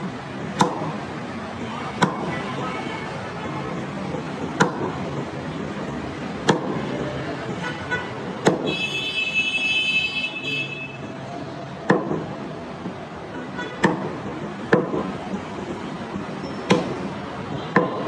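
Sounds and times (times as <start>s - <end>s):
background noise: 0.0s - 18.0s
cleaver chopping meat on wood: 0.6s - 1.0s, 4.6s - 5.0s, 6.4s - 6.8s, 8.4s - 8.7s, 11.9s - 12.3s, 13.8s - 15.2s, 16.7s - 17.1s.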